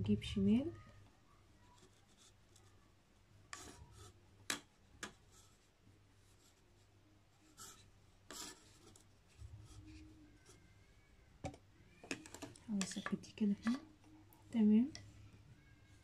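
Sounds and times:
cord rustling and rubbing: 1.6 - 2.8, 3.5 - 10.6, 11.4 - 14.0.

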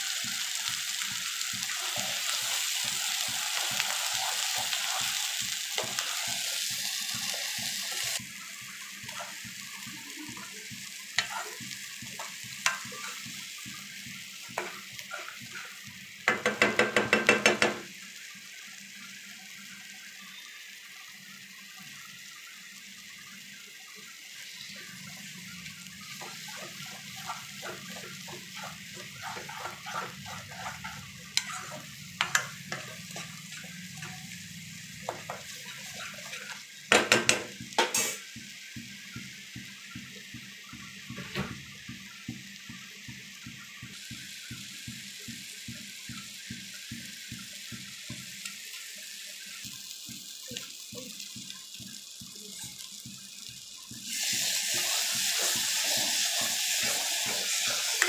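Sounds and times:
sauce sizzling in a pan: 0.0 - 58.0
metal spatula scraping: 1.6 - 8.2, 11.2 - 13.3, 14.5 - 15.8, 24.5 - 36.7
spatula knocking on pan: 16.2 - 17.9, 36.9 - 38.0.

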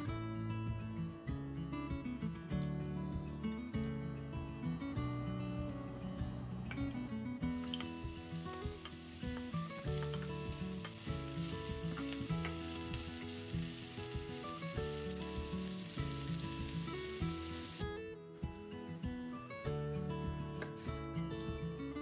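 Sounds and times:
onion sizzling in a pan: 7.5 - 17.8, 18.4 - 21.0.

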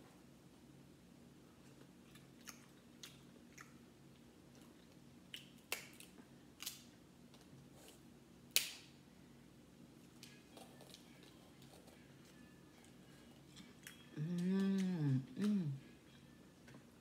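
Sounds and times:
chewing: 1.6 - 6.8, 10.2 - 15.9.

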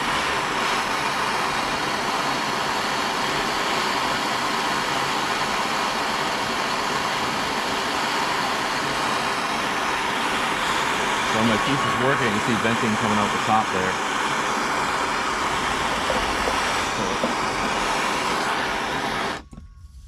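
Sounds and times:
gas torch flame burning: 0.0 - 19.6.

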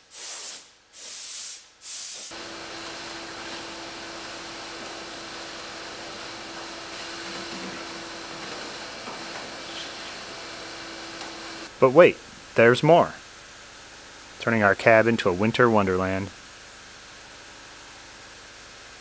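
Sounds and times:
air blow gun hissing: 0.0 - 11.7.

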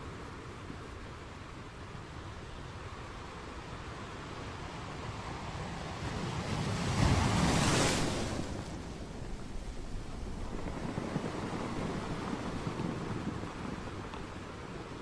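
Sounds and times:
ocean waves breaking: 4.2 - 15.0.

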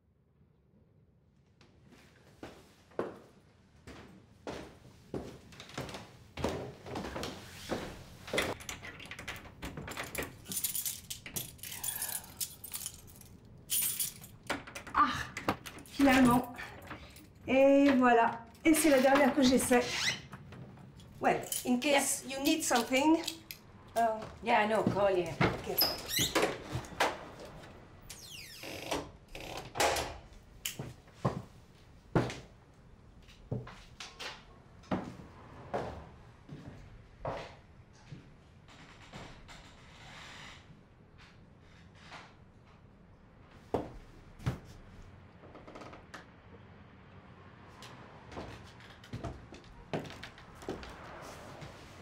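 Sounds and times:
footsteps on wooden floorboards: 3.9 - 8.6, 48.2 - 51.8
keys jangling: 8.6 - 14.8, 21.0 - 23.6.

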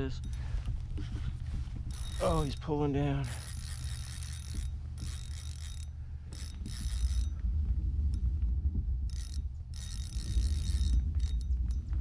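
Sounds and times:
low rumble: 0.0 - 12.0
fishing reel whirring and clicking: 1.8 - 7.4, 9.0 - 12.0.

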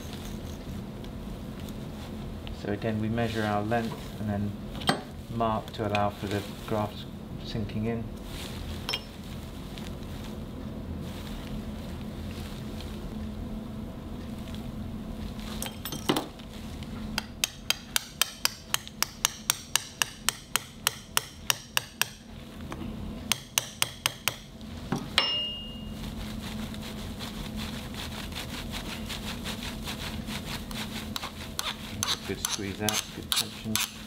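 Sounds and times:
mallet tapping metal: 17.1 - 22.2, 23.3 - 24.5, 25.2 - 25.9.

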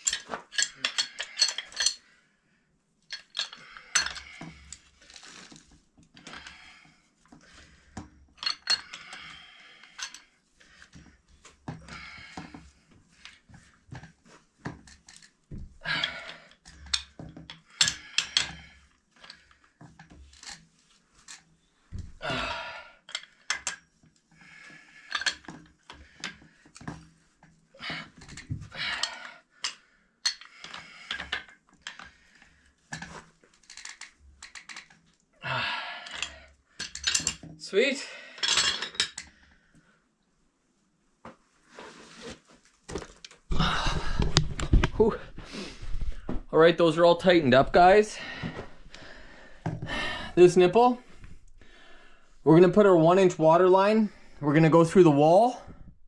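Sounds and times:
metal clinks: 0.0 - 2.0.

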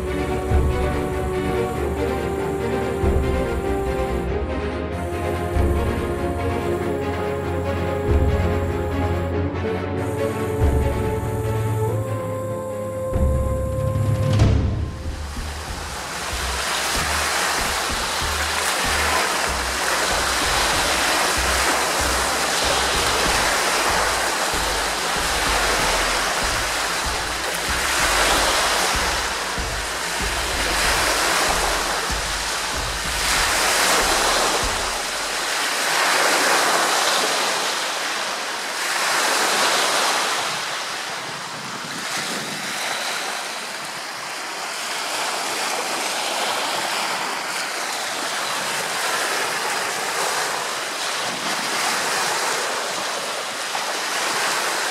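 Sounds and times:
waves washing onto shore: 0.0 - 54.9
wind buffeting microphone: 14.5 - 35.5, 40.3 - 44.3.

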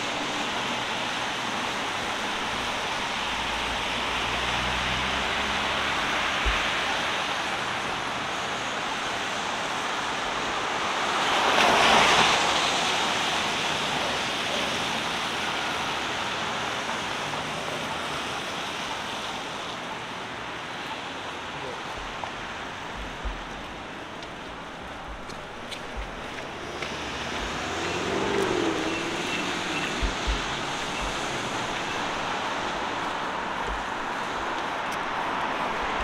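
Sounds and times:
city traffic noise: 0.0 - 36.0
vehicle passing close by: 25.9 - 36.0.

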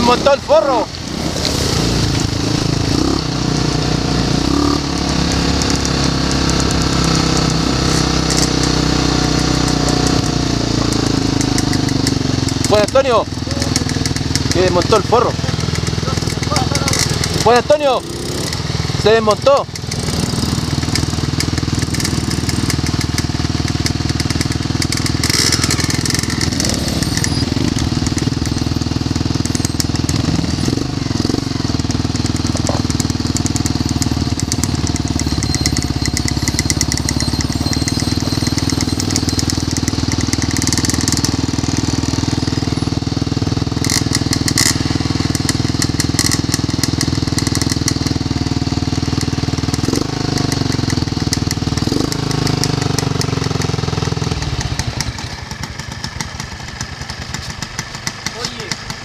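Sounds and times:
quad bike engines running: 0.0 - 59.0
short clicks and rattles: 9.6 - 30.7, 32.2 - 41.5, 43.8 - 48.2.

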